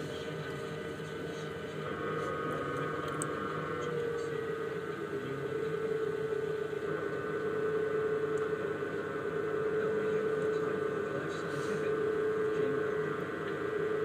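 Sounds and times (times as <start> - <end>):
pottery wheel motor whine: 0.0 - 14.0.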